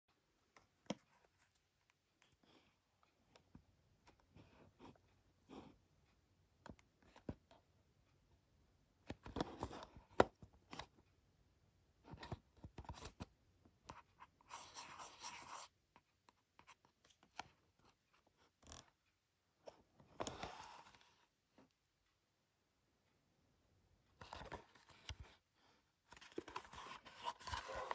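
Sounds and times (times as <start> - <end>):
packaging clicks and rustles: 26.2 - 27.9.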